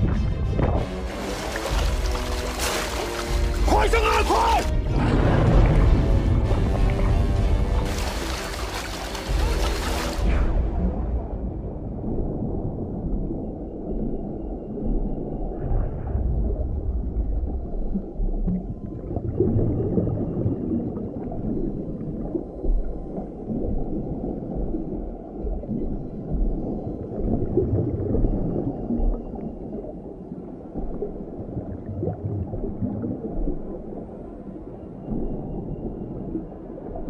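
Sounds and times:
water bubbling: 0.9 - 37.0
underwater rumble: 4.7 - 37.0.

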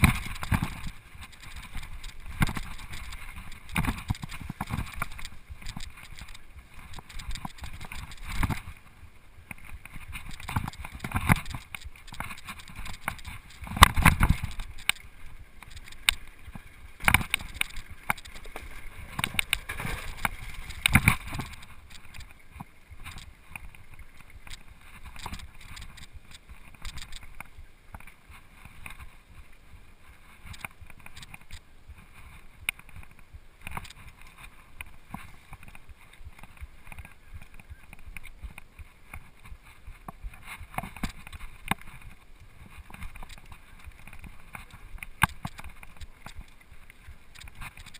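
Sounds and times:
bike chain and frame rattle: 0.0 - 8.8, 9.5 - 27.4, 30.2 - 31.6, 33.6 - 34.5, 39.9 - 47.9.

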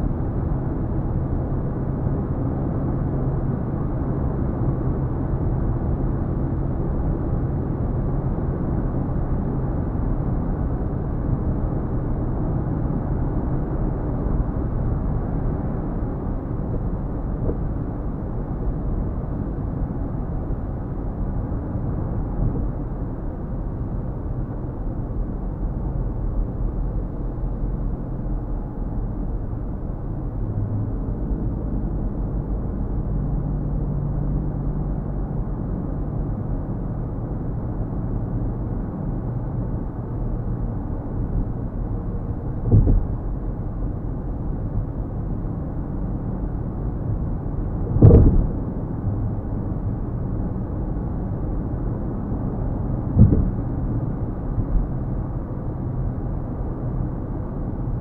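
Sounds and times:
car engine and road rumble: 0.0 - 58.0
short thumps: 42.6 - 43.1, 47.9 - 48.6, 53.2 - 53.6.

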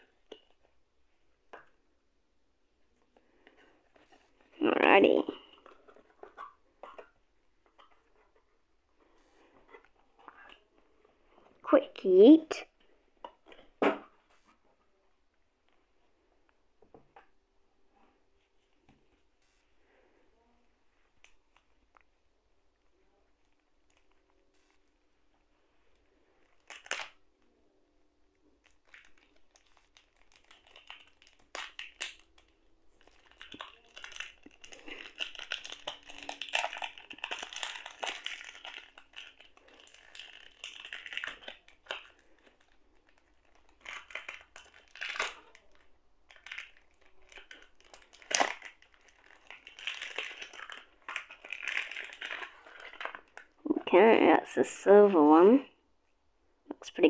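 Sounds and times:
plastic shrink-wrap crinkling: 25.8 - 27.4, 28.4 - 53.7.

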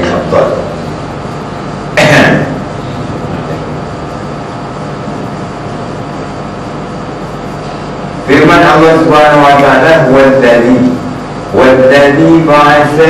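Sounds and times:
steady background hum: 0.0 - 13.0
man coughing: 1.9 - 2.7.

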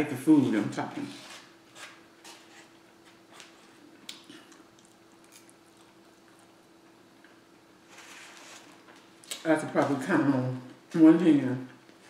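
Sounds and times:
faint steady hum: 0.0 - 12.0
person chewing food: 3.2 - 7.5.

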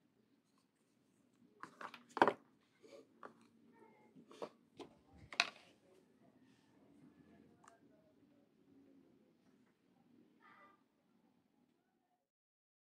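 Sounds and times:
cable and adapter handled on table: 1.6 - 3.5, 4.2 - 5.8.

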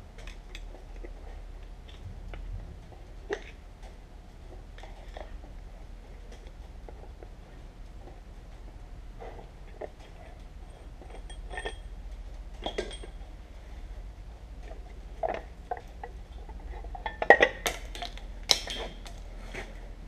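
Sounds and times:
metal plates clinking: 12.5 - 13.2.

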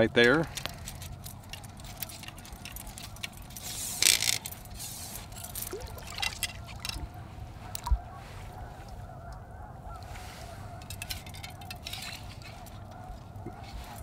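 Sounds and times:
chain clinking: 0.4 - 7.0, 10.8 - 14.0
water sloshing and trickling: 0.5 - 9.2, 10.0 - 14.0.

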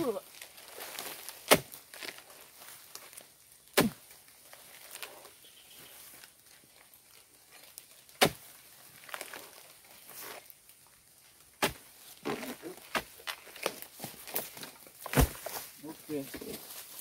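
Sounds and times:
chisel thudding into palm: 3.8 - 4.0, 8.2 - 8.4.

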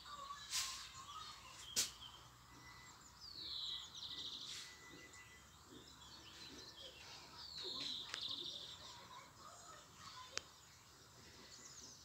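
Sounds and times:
faint bird chirps: 0.0 - 12.0
songbird whistle and trill: 0.1 - 8.9.

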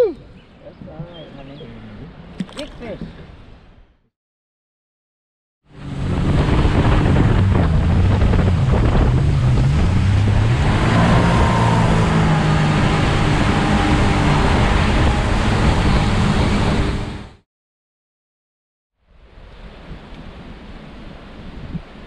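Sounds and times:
water rushing past hull: 5.7 - 17.4
wind buffeting microphone: 5.8 - 17.2, 19.2 - 22.0
outboard motor running: 5.8 - 17.4.

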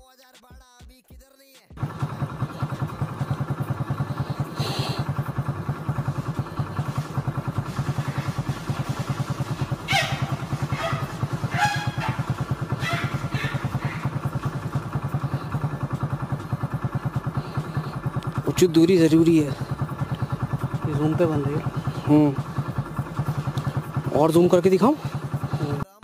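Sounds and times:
vehicle engine idling: 1.8 - 26.0.

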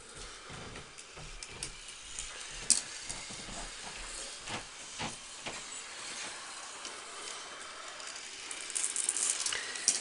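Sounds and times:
marble rolling on plastic track: 2.6 - 10.0.

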